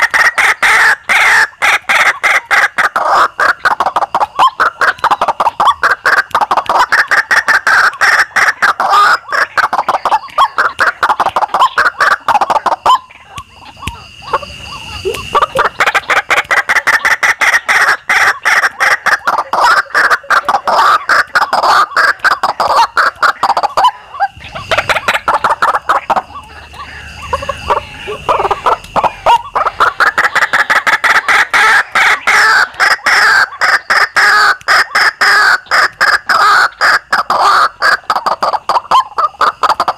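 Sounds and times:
waterhens calling: 0:00.0 - 0:39.9
thin steady high tone: 0:12.6 - 0:15.9.

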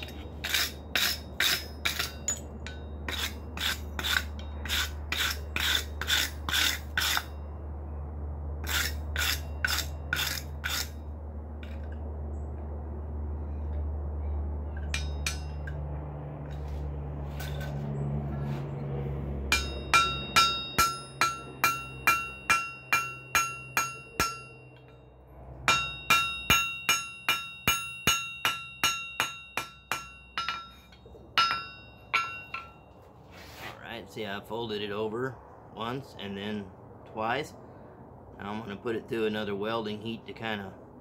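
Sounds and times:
hammer striking metal on anvil: 0:00.0 - 0:07.3, 0:14.8 - 0:15.8, 0:19.5 - 0:25.1, 0:25.7 - 0:32.9
low steady rumble: 0:00.0 - 0:41.0.

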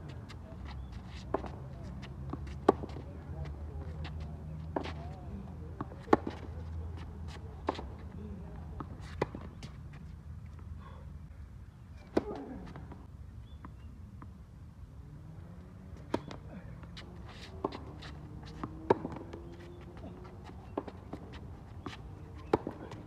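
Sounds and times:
tennis balls bouncing on hard court: 0:00.7 - 0:03.1, 0:17.5 - 0:23.0
tennis balls struck by racquets: 0:00.8 - 0:03.1, 0:04.7 - 0:06.6, 0:16.0 - 0:23.0.

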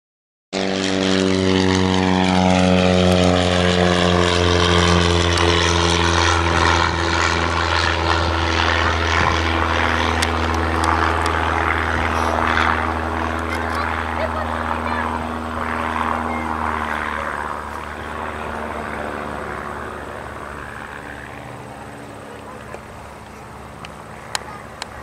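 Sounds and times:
propeller plane engines droning: 0:00.6 - 0:25.0.

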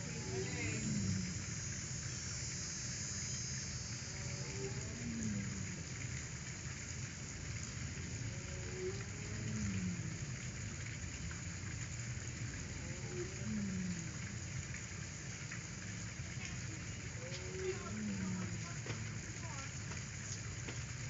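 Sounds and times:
low falling call: 0:00.0 - 0:06.2, 0:16.4 - 0:19.8
steady background hiss: 0:00.0 - 0:21.0.

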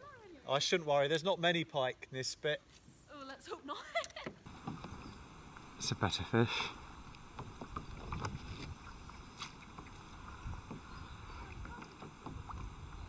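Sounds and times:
water lapping against kayak hull: 0:04.4 - 0:13.0
light knocks: 0:09.4 - 0:11.0.

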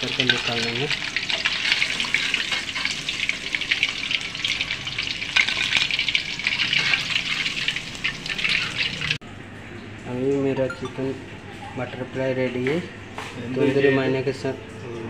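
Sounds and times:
hot oil sizzling and crackling: 0:00.0 - 0:09.2.

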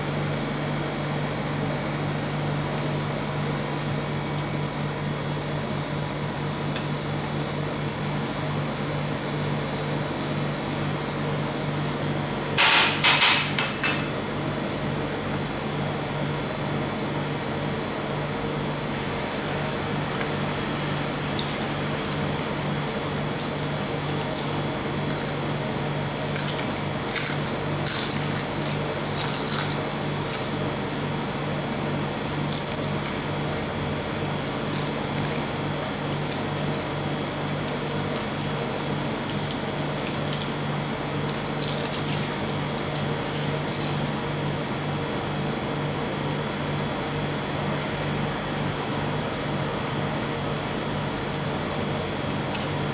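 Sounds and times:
refrigerated machine humming: 0:00.0 - 0:52.9
plastic wrappers crinkling: 0:19.1 - 0:44.2, 0:48.9 - 0:52.8.

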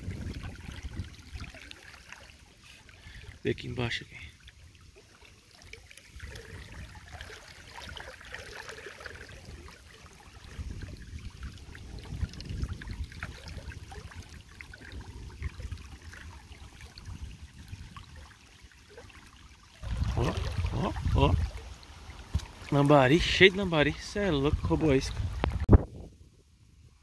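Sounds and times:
wind rumbling on microphone: 0:00.0 - 0:01.7, 0:06.1 - 0:08.1, 0:09.0 - 0:18.4, 0:19.8 - 0:27.0
river water trickling: 0:00.0 - 0:26.1.

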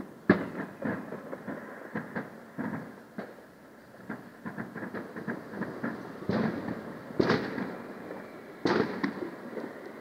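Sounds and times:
firework shells bursting: 0:04.0 - 0:10.0.

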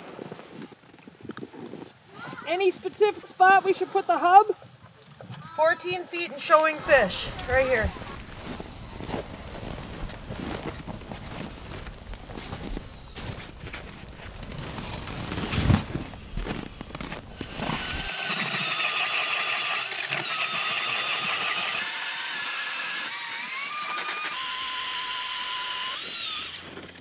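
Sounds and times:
drill whining through ice: 0:06.8 - 0:11.1, 0:14.4 - 0:15.6, 0:17.3 - 0:27.0
rustling: 0:06.8 - 0:18.0.

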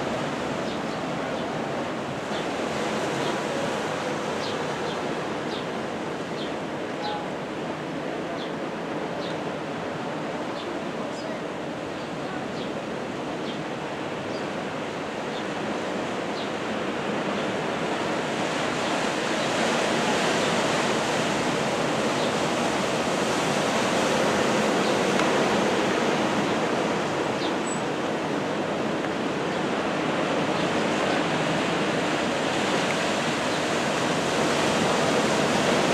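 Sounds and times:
surf rushing: 0:00.0 - 0:35.9
wind: 0:00.0 - 0:35.9.

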